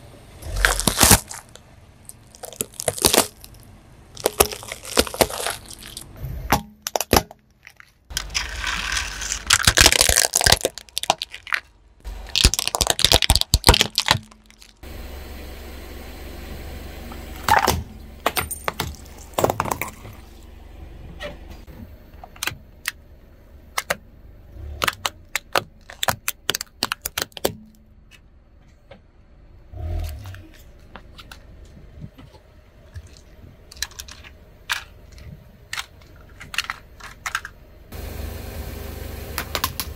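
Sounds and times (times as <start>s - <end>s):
low steady hum: 0.0s - 39.9s
objects crunching under car tyre: 0.4s - 14.9s, 17.4s - 20.6s, 24.6s - 27.8s, 29.7s - 37.7s
sharp clicks and cracks: 4.2s - 14.8s, 24.8s - 28.2s.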